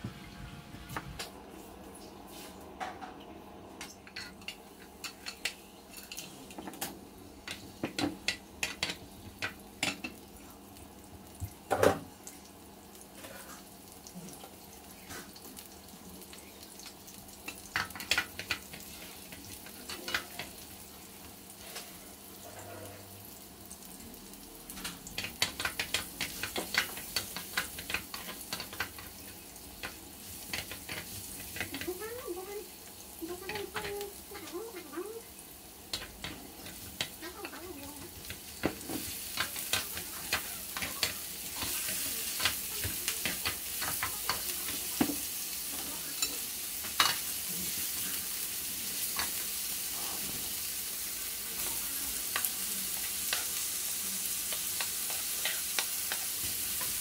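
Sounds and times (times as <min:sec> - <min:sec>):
garlic frying in oil: 0:03.8 - 0:57.0
utensils knocking on pan: 0:07.4 - 0:10.1, 0:24.8 - 0:29.2, 0:33.3 - 0:34.5, 0:35.9 - 0:45.2
wooden spatula tapping: 0:33.4 - 0:34.6.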